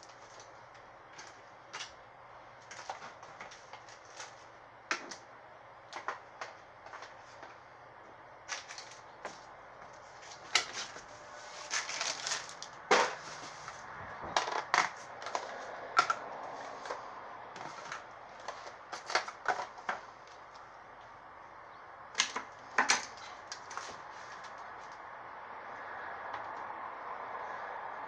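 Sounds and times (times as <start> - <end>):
rummaging through household items: 2.6 - 5.2, 5.9 - 7.6, 8.4 - 20.6.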